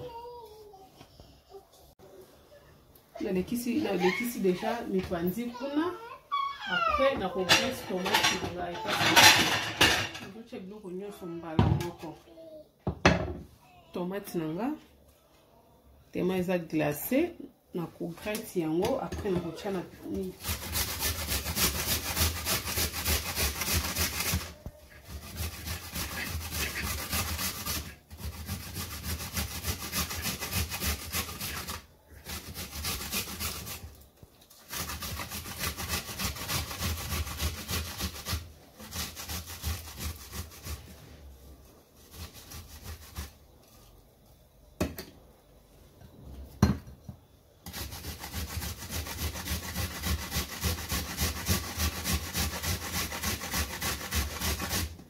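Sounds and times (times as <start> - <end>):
tomatoes rasping on metal grater: 19.3 - 33.9, 34.5 - 41.0, 42.0 - 43.4, 47.6 - 55.0.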